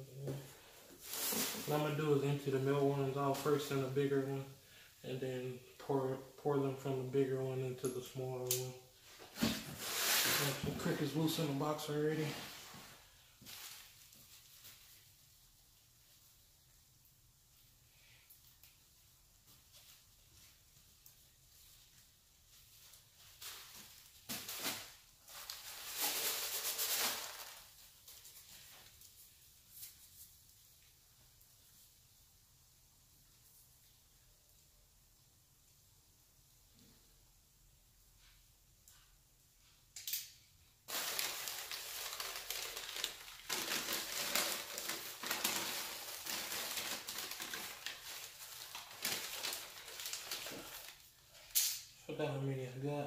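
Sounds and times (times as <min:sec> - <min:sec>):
bag and newspaper rustling: 0:00.6 - 0:04.2, 0:09.0 - 0:15.0, 0:22.6 - 0:30.2, 0:40.9 - 0:51.5
bran spilling into plastic tub: 0:40.9 - 0:51.1.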